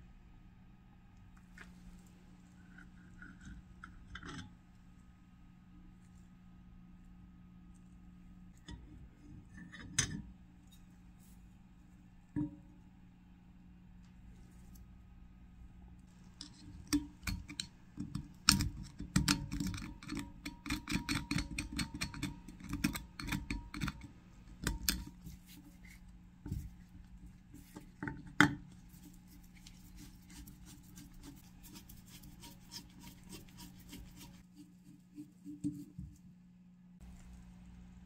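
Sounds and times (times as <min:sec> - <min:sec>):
metal pick scratching: 0:16.2 - 0:26.8, 0:28.7 - 0:35.9.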